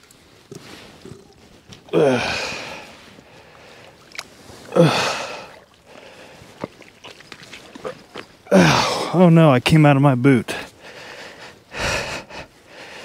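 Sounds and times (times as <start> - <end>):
water splashing: 0.0 - 9.2
man grunting with strain: 1.9 - 2.8, 4.7 - 5.5, 8.5 - 9.2.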